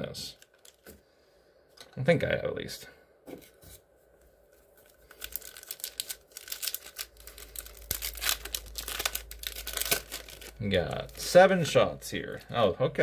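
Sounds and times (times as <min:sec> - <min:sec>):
foil wrapper tearing and crinkling: 0:00.4 - 0:00.9, 0:04.8 - 0:11.3.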